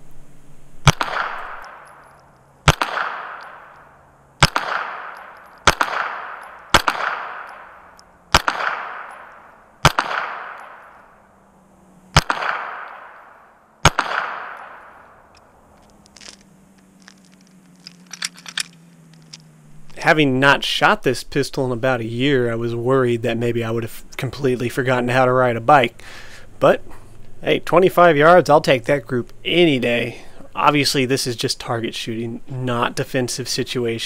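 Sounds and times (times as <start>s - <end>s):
pistol shots with echo: 0.8s - 11.2s, 12.1s - 15.2s.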